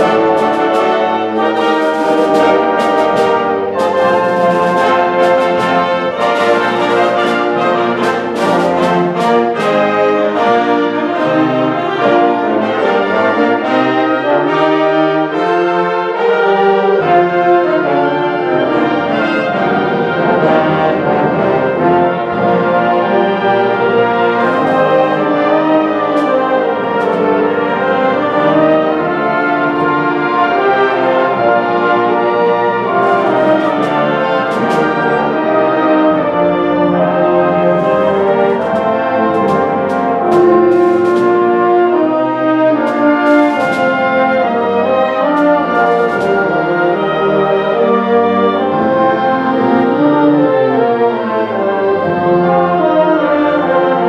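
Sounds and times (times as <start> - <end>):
sharp percussion strikes: 0.0 - 10.1, 32.9 - 35.4, 37.7 - 41.8, 42.8 - 44.6
band playing with brass: 0.0 - 54.0.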